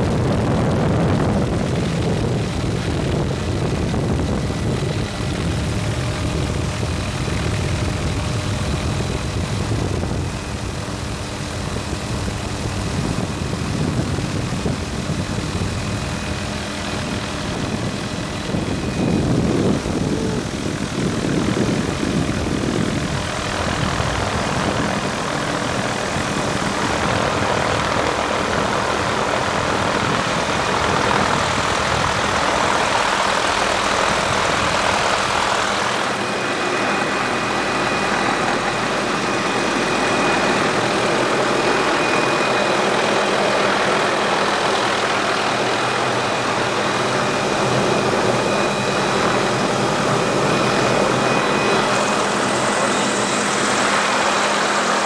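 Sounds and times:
helicopter rotor and engine: 0.0 - 55.0.

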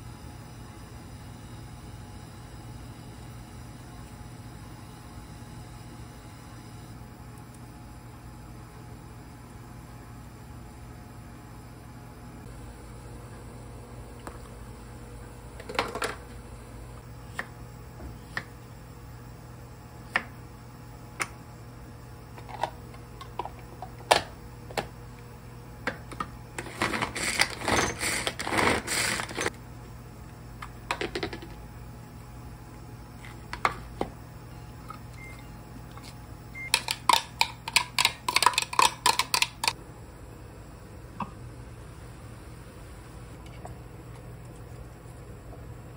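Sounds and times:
manual food chopper rattling: 26.6 - 29.5, 36.7 - 39.8.

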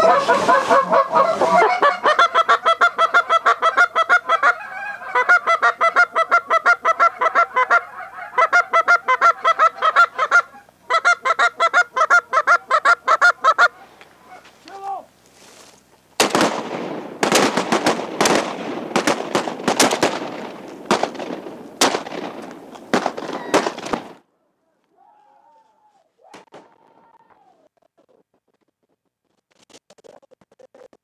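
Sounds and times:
geese honking: 0.0 - 14.6.

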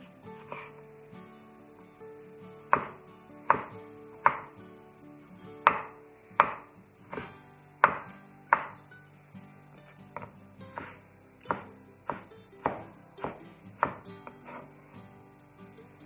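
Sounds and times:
knife chopping on wooden board: 2.8 - 3.7, 5.7 - 8.0.

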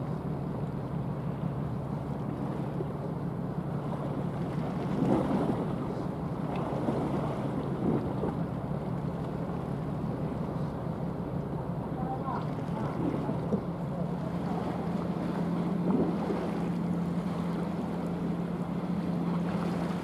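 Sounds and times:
ship engine drone: 0.0 - 20.0
wind noise on microphone: 7.7 - 8.4.

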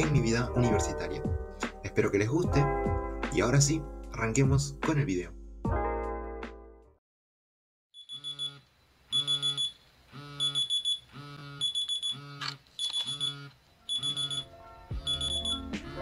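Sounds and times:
phone alarm beeping: 8.0 - 15.7.

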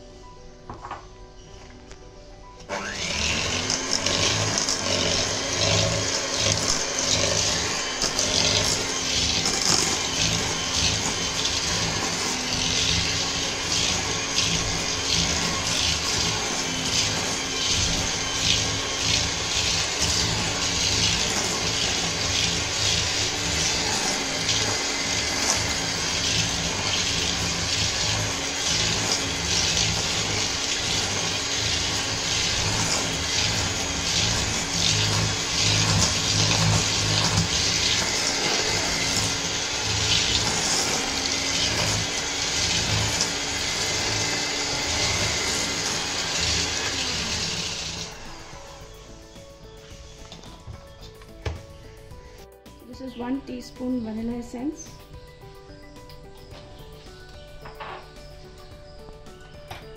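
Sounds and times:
electric hand mixer running: 2.7 - 50.6.

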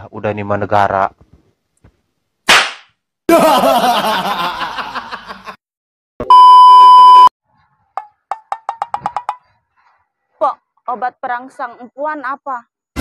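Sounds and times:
loud high beep: 6.2 - 7.3.

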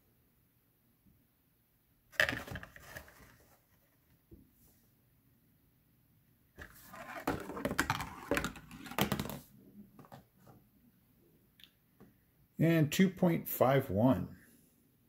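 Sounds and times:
marble rolling on cardboard: 6.6 - 10.2.

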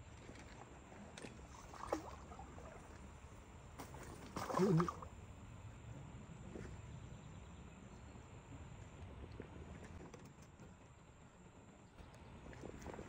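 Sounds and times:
faint flowing water: 0.0 - 9.7.

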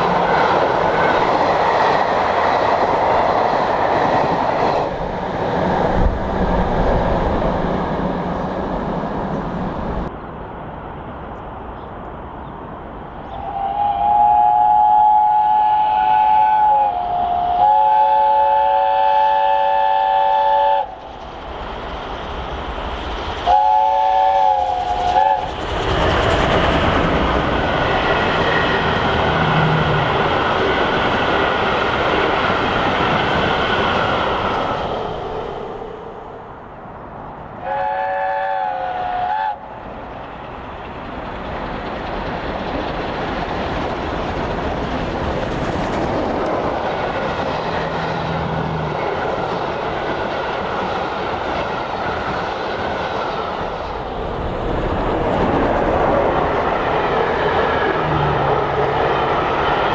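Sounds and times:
train passing at speed: 0.0 - 59.9
steam locomotive chime whistle: 37.6 - 39.6.

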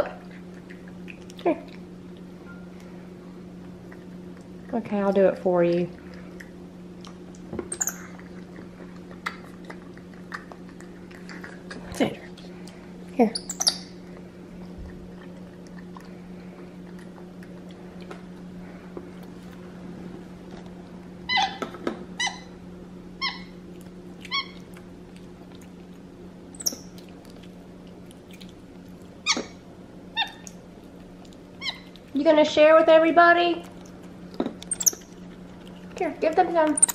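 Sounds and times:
monkey squeaking: 7.7 - 8.2, 13.3 - 14.0, 21.3 - 21.6, 22.2 - 22.5, 23.2 - 23.5, 24.3 - 24.6, 26.5 - 27.0, 30.2 - 30.5, 31.6 - 31.9, 34.7 - 35.1, 36.7 - 36.9.

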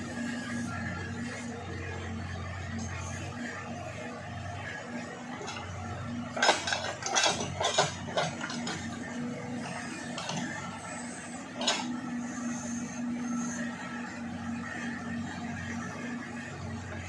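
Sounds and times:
diesel engine running: 0.0 - 17.0
metallic clanks of bucket linkage: 6.4 - 8.8, 11.6 - 11.9.

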